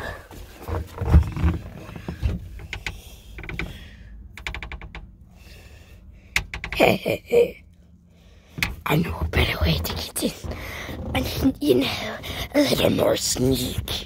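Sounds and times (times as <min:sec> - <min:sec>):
dull thumps: 0:00.4 - 0:05.2
door knob clicking and rattling: 0:04.3 - 0:05.1, 0:06.4 - 0:06.8.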